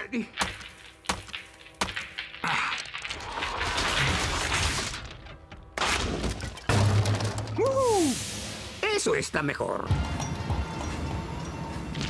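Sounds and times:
foam crust cracking and crumbling: 0.4s - 7.7s
crash: 0.4s - 8.8s.

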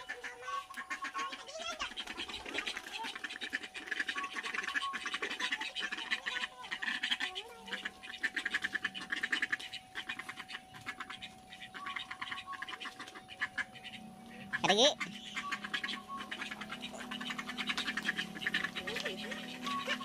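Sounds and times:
buzzing animal calls: 0.0s - 20.0s
faint steady hum: 0.0s - 20.0s.

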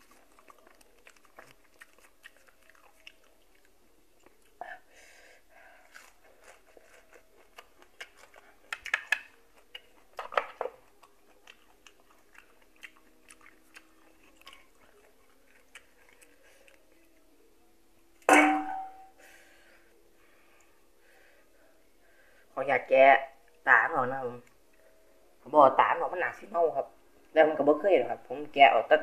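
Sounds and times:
person chewing: 0.0s - 4.6s, 5.7s - 17.0s.

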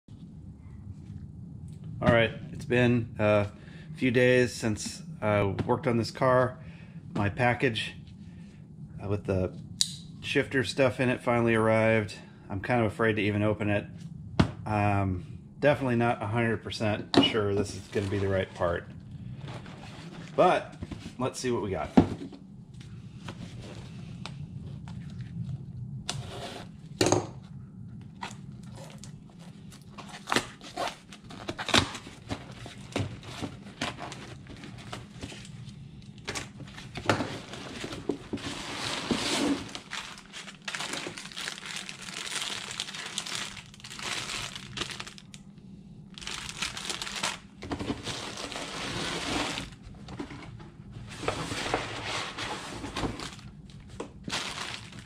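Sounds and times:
crinkling plastic bags: 28.3s - 45.5s, 46.1s - 49.9s, 52.7s - 55.0s
crumpled packing paper: 36.4s - 45.4s, 46.1s - 49.8s, 51.6s - 55.0s.

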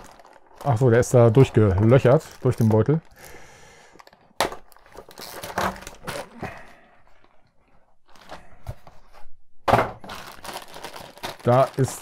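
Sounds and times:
plastic bag crinkling: 0.0s - 6.8s, 10.0s - 12.0s.

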